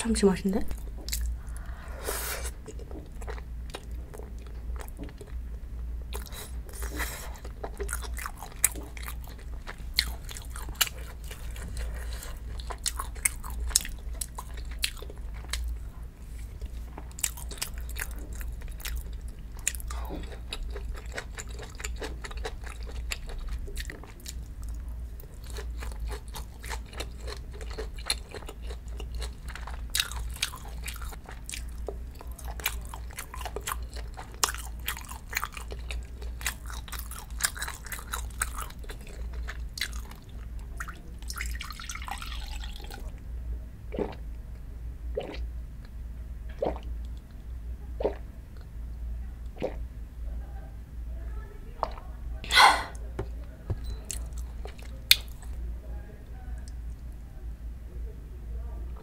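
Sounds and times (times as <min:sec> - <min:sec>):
low hum: 0:00.0 - 0:07.7
wet chewing and biting: 0:06.1 - 0:15.7
food crunching: 0:06.1 - 0:15.8, 0:16.6 - 0:43.0.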